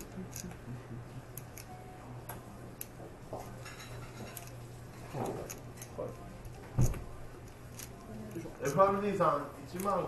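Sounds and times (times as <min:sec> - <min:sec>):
poker chips clicking: 0:00.0 - 0:00.6, 0:09.7 - 0:10.0
low steady hum: 0:00.0 - 0:10.0.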